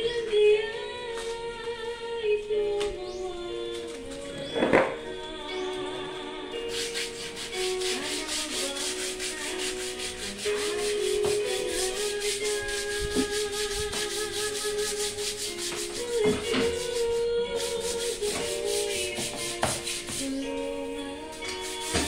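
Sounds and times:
sandpaper rubbing: 0:06.7 - 0:20.4, 0:21.5 - 0:22.0.

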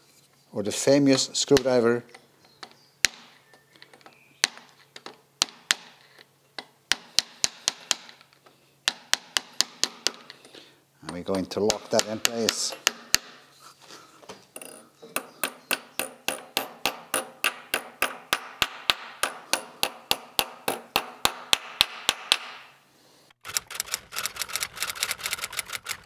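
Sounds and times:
hammer tapping metal plate: 0:11.6 - 0:13.4, 0:14.6 - 0:22.6
fast clicks: 0:23.4 - 0:26.0.

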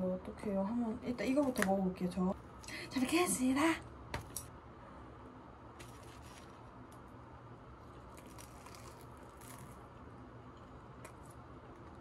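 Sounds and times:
crispy food being chewed: 0:07.8 - 0:12.0.

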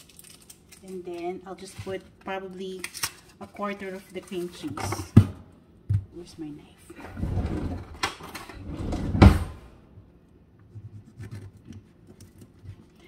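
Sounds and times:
drawer pulled open: 0:07.0 - 0:09.8
drawer sliding shut: 0:07.0 - 0:09.8.

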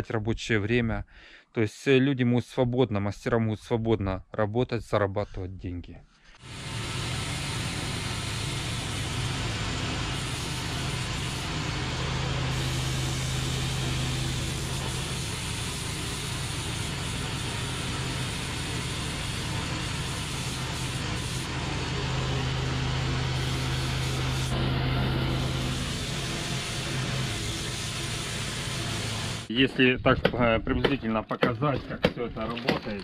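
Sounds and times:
petrol engine droning: 0:06.5 - 0:29.5.

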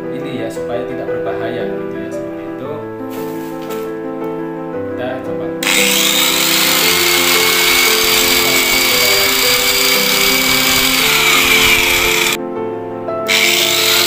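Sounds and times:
background music: 0:00.0 - 0:14.0
angle grinder whining: 0:05.6 - 0:12.4, 0:13.3 - 0:14.0.

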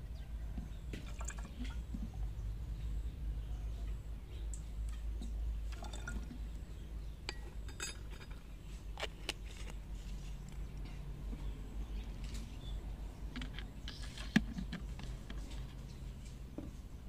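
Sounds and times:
liquid pouring: 0:05.7 - 0:06.4
metal spoon clinking: 0:07.3 - 0:08.4.

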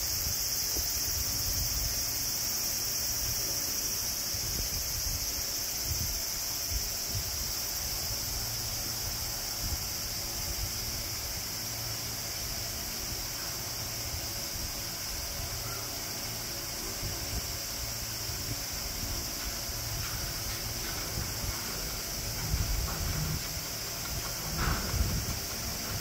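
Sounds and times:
night insects chorus: 0:00.0 - 0:26.0
wind rumble on microphone: 0:04.3 - 0:11.5, 0:16.8 - 0:26.0.

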